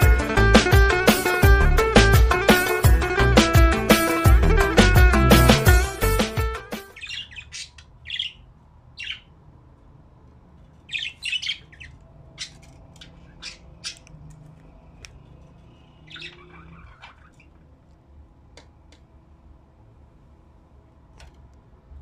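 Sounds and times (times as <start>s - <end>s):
budgerigars chirping and squawking: 6.7s - 9.4s, 10.8s - 14.3s, 15.8s - 17.6s.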